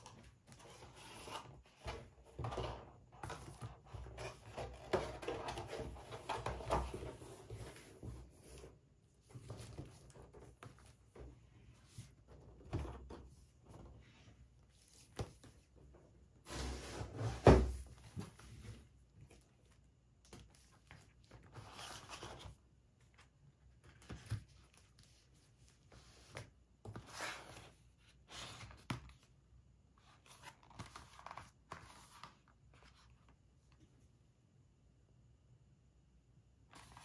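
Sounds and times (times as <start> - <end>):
cardboard and paper rustling: 0.0 - 8.6, 9.2 - 29.3.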